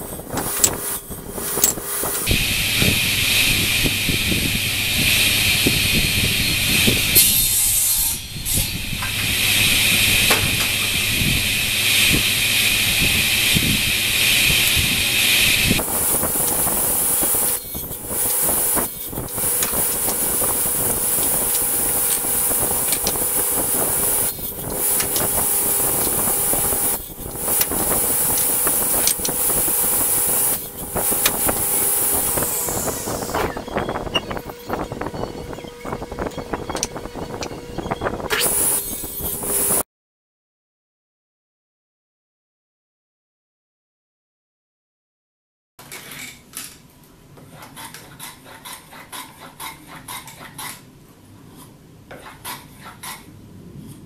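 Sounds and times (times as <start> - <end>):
table saw cutting wood: 0.0 - 39.8.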